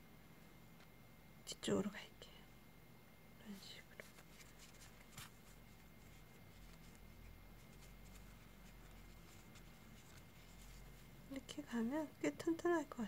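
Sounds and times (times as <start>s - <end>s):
faint rustling and scratching: 3.4s - 12.7s.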